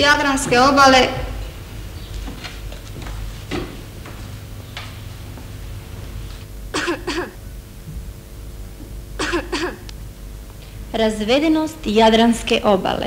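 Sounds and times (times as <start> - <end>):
low hum: 0.0 - 11.4
person clearing throat: 6.7 - 7.4, 9.2 - 9.9.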